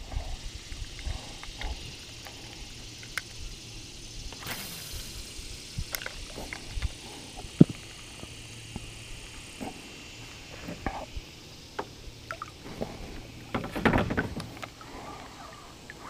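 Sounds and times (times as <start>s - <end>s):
fishing reel clicks and knocks: 5.9s - 7.0s.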